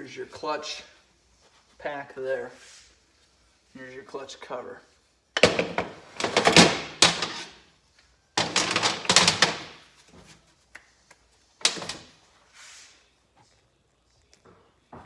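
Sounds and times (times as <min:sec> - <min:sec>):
metal tools clattering on workbench: 0:08.4 - 0:09.7.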